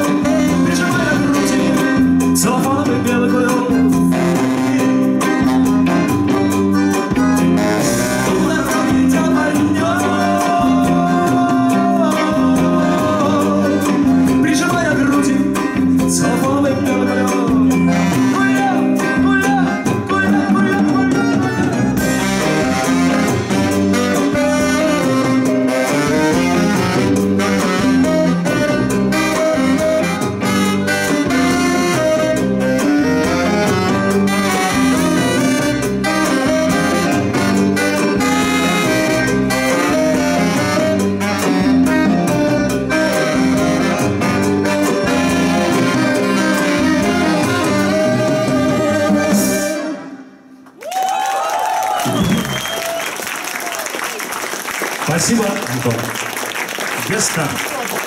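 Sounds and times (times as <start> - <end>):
drums with steady beat: 0.0 - 49.7
electric guitar: 0.0 - 50.2
saxophones: 3.8 - 14.4, 17.6 - 19.8, 21.0 - 50.6
button accordion: 4.1 - 8.8, 21.1 - 50.2.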